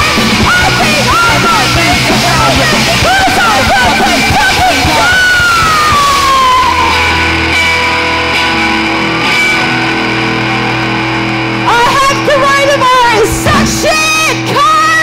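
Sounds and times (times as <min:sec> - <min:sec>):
singer's voice: 0:00.0 - 0:07.2, 0:11.6 - 0:15.0
punk rock band playing: 0:00.0 - 0:15.0.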